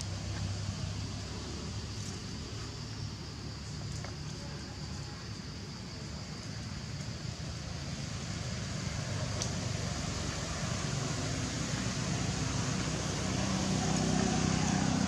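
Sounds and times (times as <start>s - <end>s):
traffic noise: 0.0s - 15.0s
motorbike engine passing: 8.1s - 15.0s.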